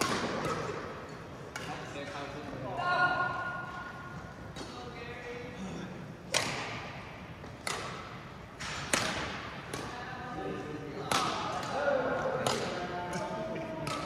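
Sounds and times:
racket hitting shuttlecock: 0.0s - 1.8s, 6.3s - 10.0s, 11.0s - 14.0s.

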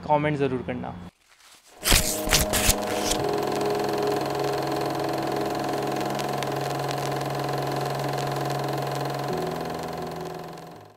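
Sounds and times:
drone of low tones: 2.7s - 10.9s.

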